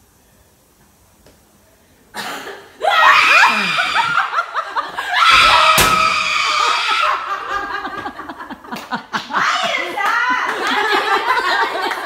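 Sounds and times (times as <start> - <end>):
woman screaming: 2.8 - 4.4, 5.0 - 7.4
women laughing: 3.2 - 5.7, 6.5 - 12.0
metal locker door bang: 5.3 - 6.3.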